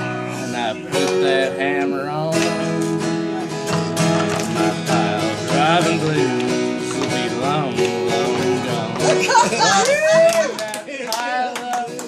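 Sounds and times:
acoustic guitar strumming: 0:00.0 - 0:12.0
person singing: 0:00.2 - 0:03.5, 0:04.3 - 0:12.0.

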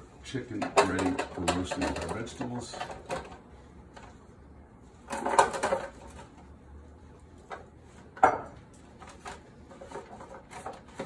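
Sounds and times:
vegetables clattering into metal pan: 0:00.5 - 0:03.4.

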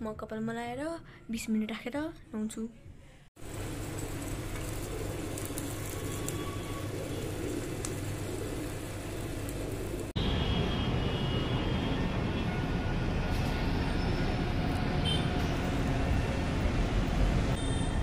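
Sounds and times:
faint crackles: 0:03.4 - 0:10.2
gas burner flame: 0:03.4 - 0:10.2
city traffic hum: 0:03.4 - 0:18.0.

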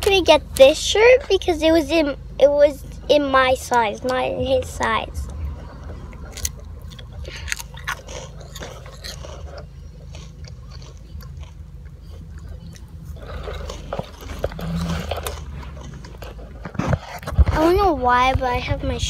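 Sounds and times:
child chewing crunchy snack: 0:05.2 - 0:17.7.

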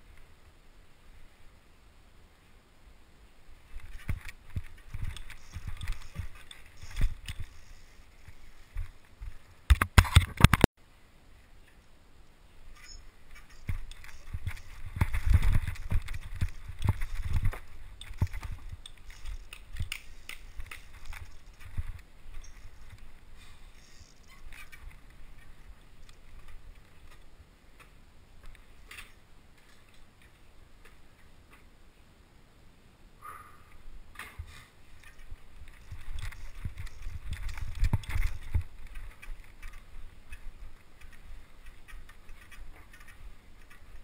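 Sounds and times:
bike clicks and taps: 0:09.7 - 0:10.6, 0:12.8 - 0:23.1.

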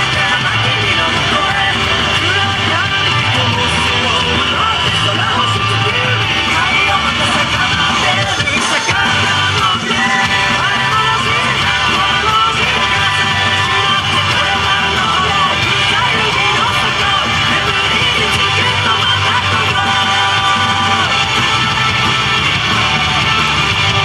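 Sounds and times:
rock music with guitar and singing: 0:00.0 - 0:24.0.

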